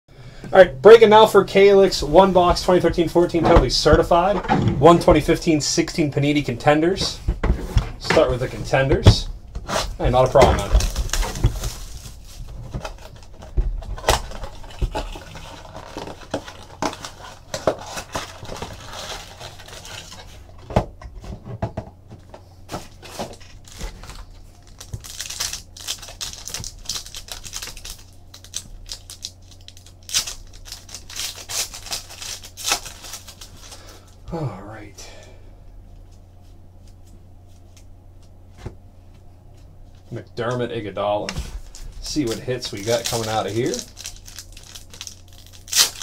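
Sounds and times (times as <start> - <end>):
foil packs crinkling and tearing: 9.7 - 20.5, 22.9 - 34.2, 41.4 - 46.0.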